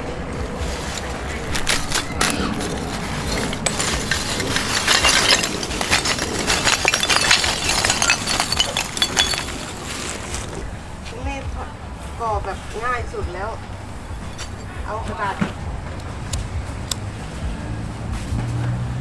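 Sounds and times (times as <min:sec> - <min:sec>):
charcoal clattering into pot: 0:01.5 - 0:10.5.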